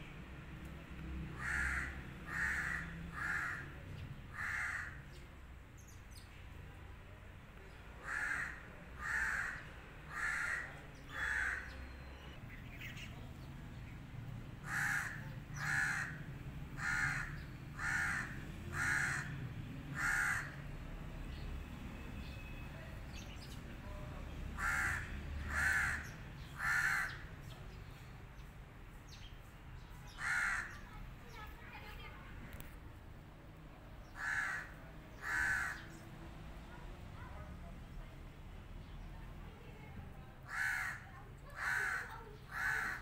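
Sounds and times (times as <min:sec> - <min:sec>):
crow cawing: 0:01.4 - 0:05.1, 0:08.0 - 0:11.8, 0:14.6 - 0:20.6, 0:24.6 - 0:27.3, 0:30.1 - 0:30.8, 0:34.1 - 0:36.0, 0:40.5 - 0:43.0.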